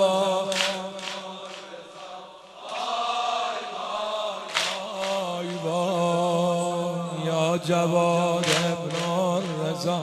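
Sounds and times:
person chanting a lament: 0:00.0 - 0:10.0.

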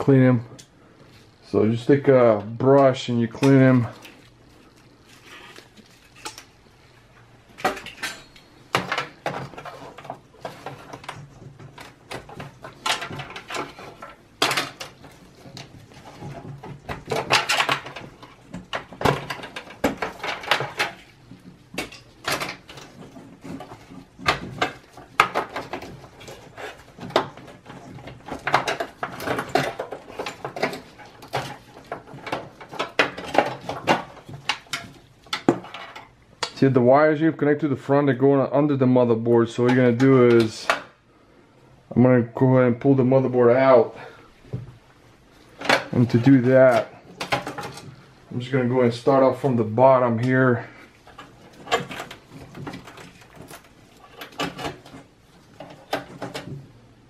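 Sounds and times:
computer parts clattering: 0:07.4 - 0:36.7, 0:45.5 - 0:57.0.

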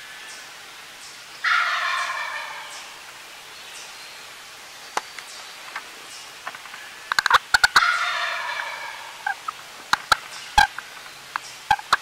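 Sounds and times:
turkey gobbling: 0:01.4 - 0:03.0, 0:06.8 - 0:10.8, 0:11.7 - 0:12.0.

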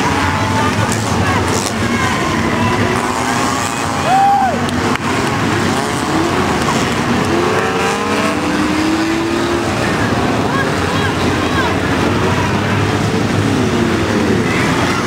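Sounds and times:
tire squeal: 0:00.0 - 0:08.8
race car engines passing: 0:00.0 - 0:15.0.

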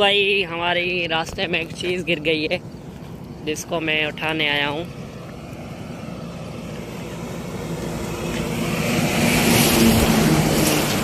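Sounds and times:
heavy truck passing: 0:04.8 - 0:11.0.

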